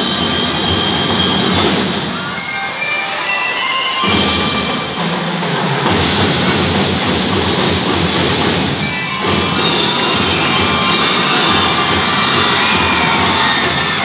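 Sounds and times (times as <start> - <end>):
drums: 0.0 - 2.8, 3.4 - 14.0
bell lyres ringing: 8.8 - 14.0.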